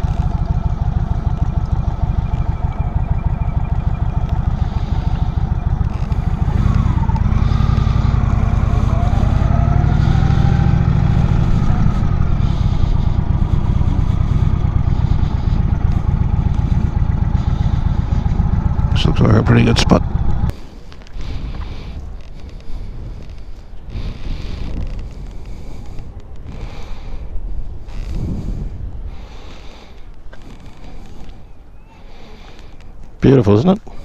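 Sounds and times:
motorcycle engine running: 0:00.0 - 0:20.6.

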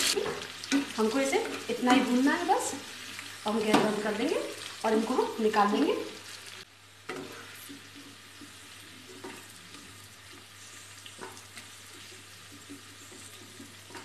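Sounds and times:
hot oil sizzling faintly: 0:00.0 - 0:14.0
spatula scraping a pan: 0:07.1 - 0:14.0.

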